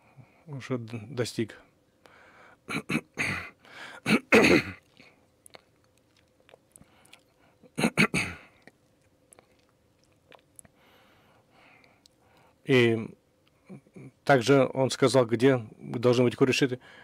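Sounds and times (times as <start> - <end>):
man coughing and clearing throat: 2.7 - 4.8, 7.8 - 8.5.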